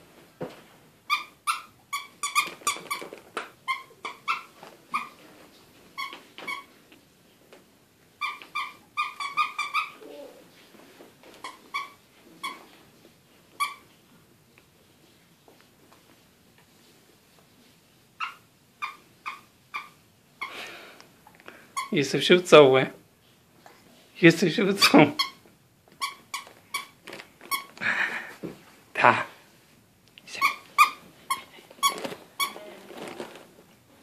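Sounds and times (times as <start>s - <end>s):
toy squeaker squeaks: 1.1s - 3.1s, 3.7s - 5.2s, 8.2s - 10.0s, 24.8s - 25.4s, 26.0s - 27.7s.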